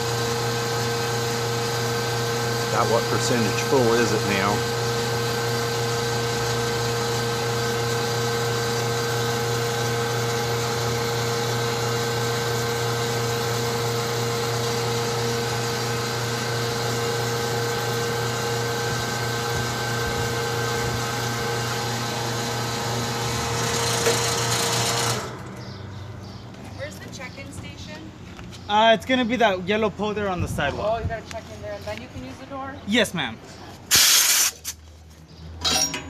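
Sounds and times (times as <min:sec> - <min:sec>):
propane pump humming and whining: 0:00.0 - 0:27.6
gas hiss: 0:33.9 - 0:34.7.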